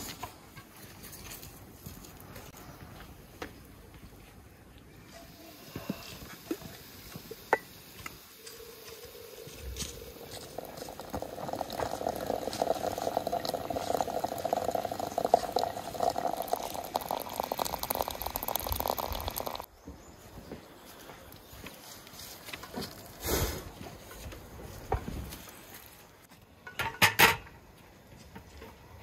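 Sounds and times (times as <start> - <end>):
water pouring into a glass jug: 10.0 - 19.7.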